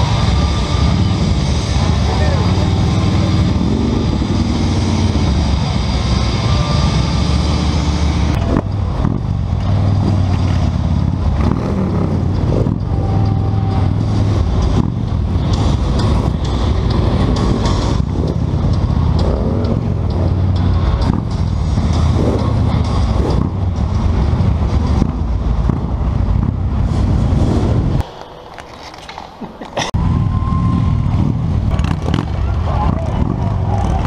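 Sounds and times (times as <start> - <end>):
motorcycle engines running: 0.0 - 28.0, 30.0 - 34.0.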